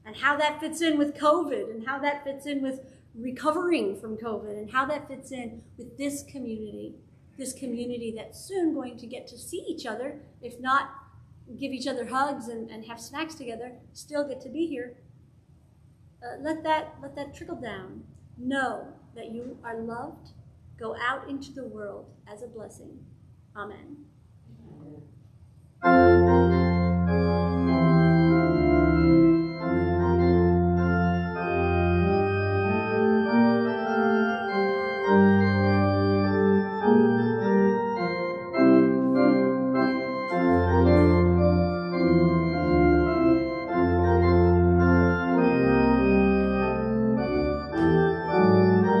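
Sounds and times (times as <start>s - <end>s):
organ playing sustained chords: 25.8s - 49.0s.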